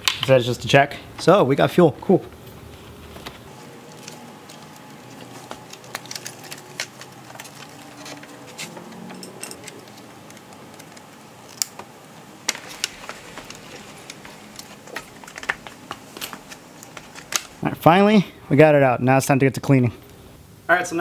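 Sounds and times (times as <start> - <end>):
clicks and clinks of tools: 5.2 - 11.8.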